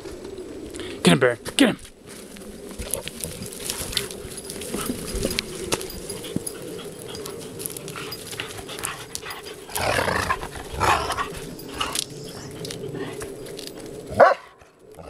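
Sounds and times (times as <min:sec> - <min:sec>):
dogs scuffling: 0:01.8 - 0:14.2
dog making rough noises: 0:02.8 - 0:14.6.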